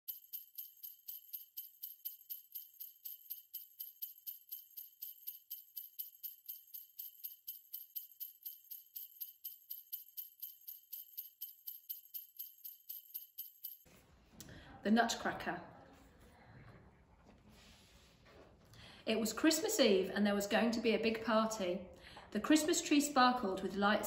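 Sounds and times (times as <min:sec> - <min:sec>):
sleigh bells jingling: 0:00.0 - 0:13.9.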